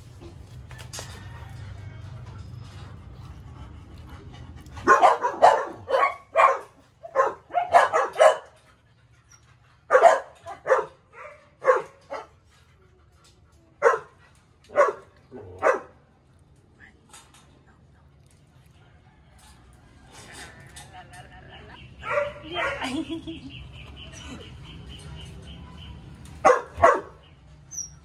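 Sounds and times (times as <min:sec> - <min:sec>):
puppies barking: 0:04.8 - 0:08.6, 0:09.9 - 0:12.3, 0:13.8 - 0:14.1, 0:14.7 - 0:16.0, 0:22.0 - 0:27.9.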